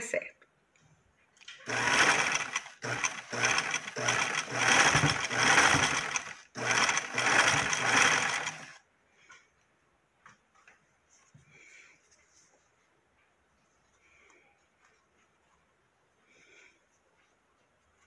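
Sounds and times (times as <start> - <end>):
sewing machine stitching: 1.5 - 8.8.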